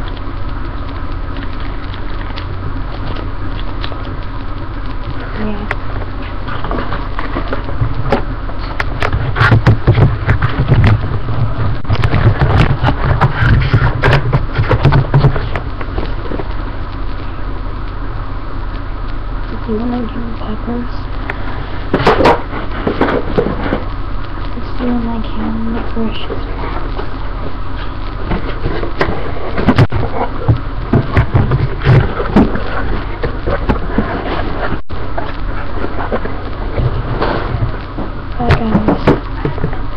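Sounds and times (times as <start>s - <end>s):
steady low hum: 0.0s - 39.9s
objects rustling and knocking: 5.0s - 16.7s, 21.3s - 23.9s, 25.2s - 39.9s.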